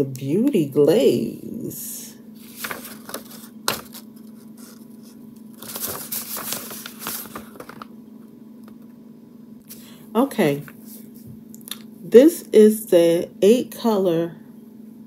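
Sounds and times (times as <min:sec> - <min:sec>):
plastic packaging crinkling: 0:02.4 - 0:08.0.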